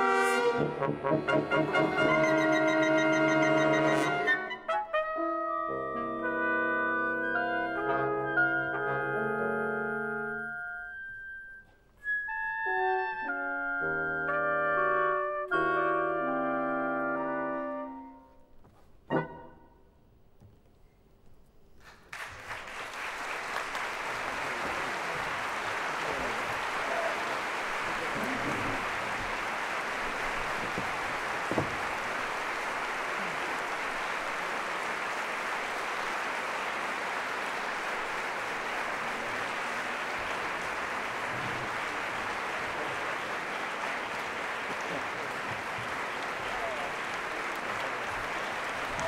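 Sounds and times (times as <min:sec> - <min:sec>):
audience applauding: 0:00.0 - 0:04.8, 0:21.8 - 0:49.0
music: 0:00.0 - 0:20.0.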